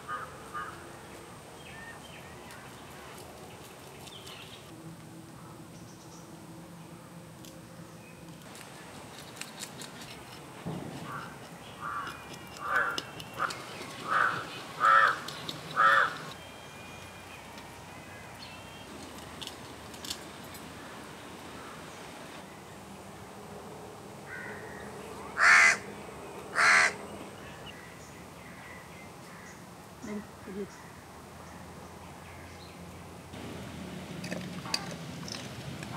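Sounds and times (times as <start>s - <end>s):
crow cawing: 0.1s - 0.8s, 11.0s - 16.3s, 24.3s - 24.8s, 25.4s - 25.9s, 26.5s - 27.0s.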